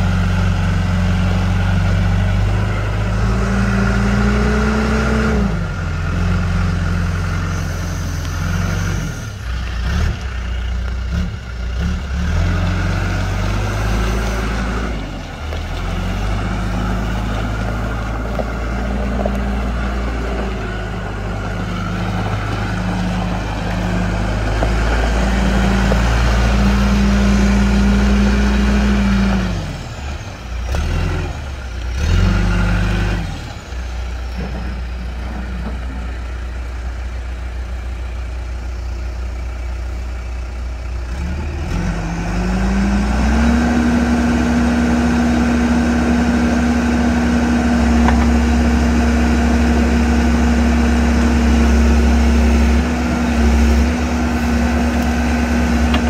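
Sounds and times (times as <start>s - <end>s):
diesel engine running: 0.0s - 56.0s
hydraulics lowering stabilizer leg: 54.2s - 56.0s.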